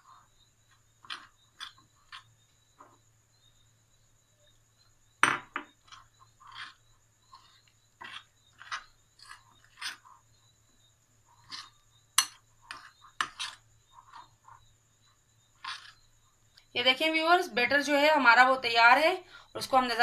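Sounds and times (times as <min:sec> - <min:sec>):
spoon scraping ceramic bowl: 0:01.0 - 0:02.3, 0:05.8 - 0:10.2, 0:11.3 - 0:14.6, 0:15.6 - 0:16.0.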